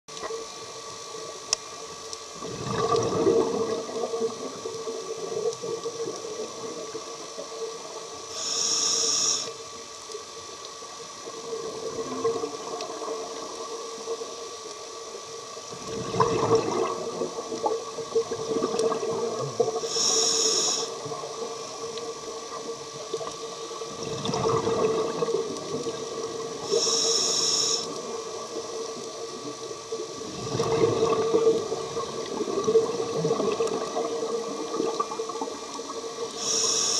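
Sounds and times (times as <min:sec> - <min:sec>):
bubbly exhalations: 0:02.4 - 0:03.9, 0:15.9 - 0:17.2
steady hum: 0:08.1 - 0:10.3, 0:19.8 - 0:21.8, 0:26.5 - 0:28.5, 0:36.3 - 0:36.9
hissing regulator inhalations: 0:08.3 - 0:09.6, 0:19.8 - 0:21.0, 0:26.6 - 0:28.0, 0:36.4 - 0:36.9.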